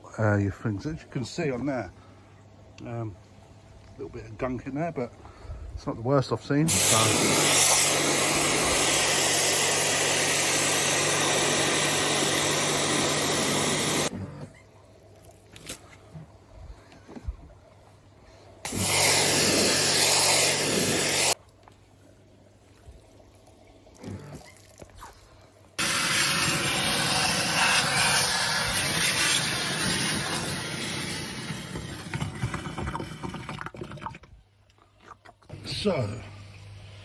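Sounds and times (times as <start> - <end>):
pressure washer jet blasting water: 6.7 - 14.1, 18.7 - 21.4, 25.8 - 32.2.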